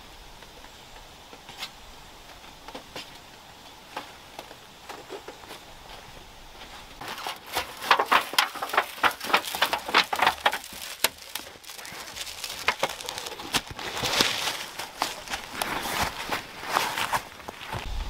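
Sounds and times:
dry leaves crunching and rustling: 7.0 - 18.0.

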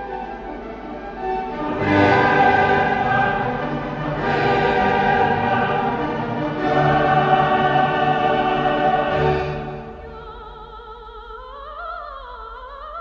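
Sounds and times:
orchestra playing: 0.0 - 10.0.

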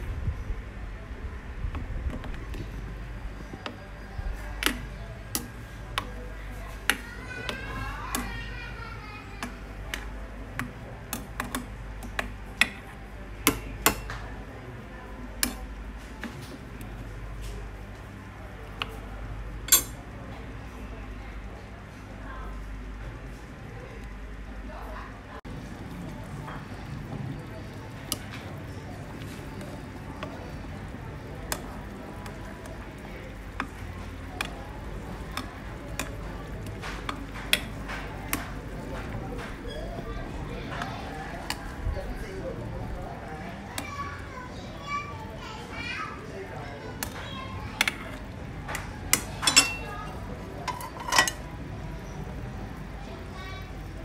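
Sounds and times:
low background noise: 0.0 - 54.0
metal ladle clinking against pot: 19.7 - 20.0, 49.1 - 51.4.

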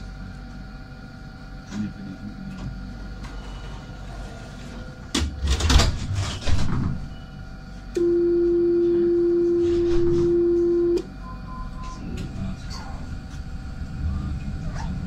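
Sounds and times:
clattering rumbling noise: 3.2 - 7.1
tram warning tone: 7.0 - 14.6.

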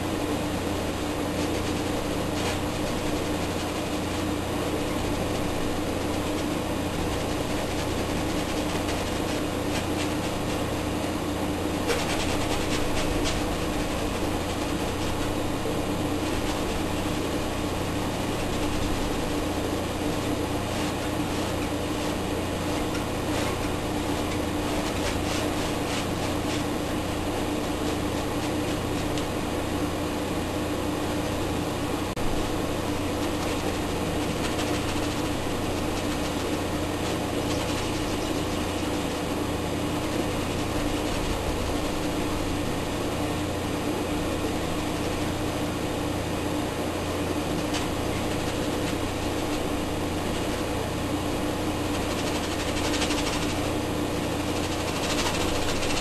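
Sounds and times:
steady mechanical hum: 0.0 - 56.0.

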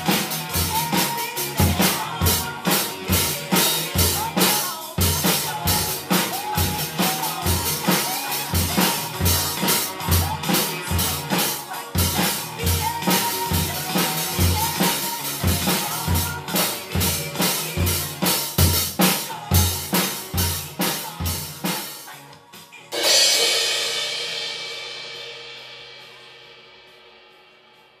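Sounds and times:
drum kit steady beat: 0.0 - 28.0
cymbal crash ringing: 23.0 - 28.0.

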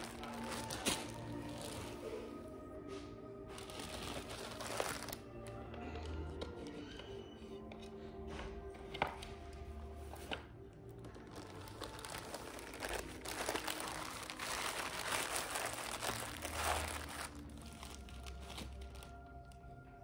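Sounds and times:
plastic packaging crinkling: 0.0 - 2.4, 3.4 - 6.4, 11.0 - 19.6.

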